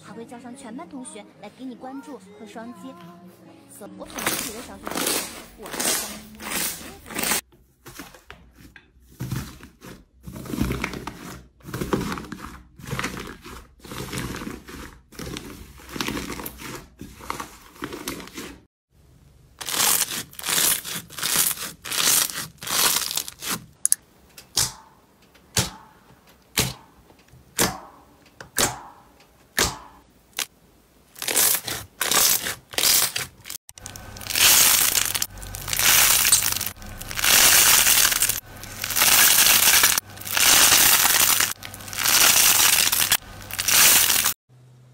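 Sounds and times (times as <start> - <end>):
slime crackling and tearing: 4.1 - 7.4, 19.6 - 23.8, 31.1 - 44.4.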